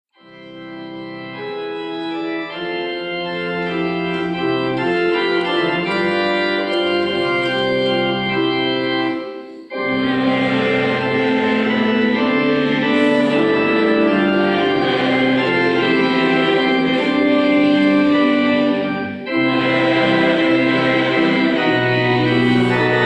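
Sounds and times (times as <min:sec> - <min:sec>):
organ chords: 0:00.2 - 0:23.0.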